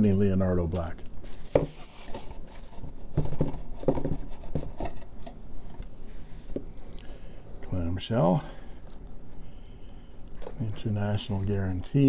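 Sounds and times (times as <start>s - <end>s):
cardboard rubbing and scraping: 1.4s - 5.0s.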